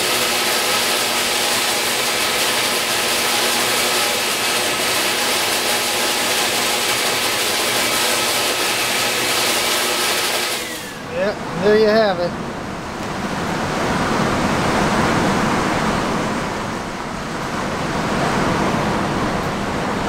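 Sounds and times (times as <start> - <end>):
belt sander running: 0.0 - 11.3
shop vacuum running: 0.0 - 20.0.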